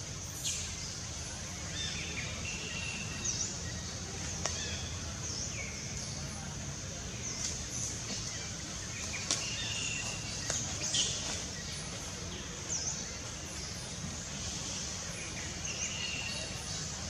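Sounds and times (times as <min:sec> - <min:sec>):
insects hissing: 0:07.2 - 0:17.0.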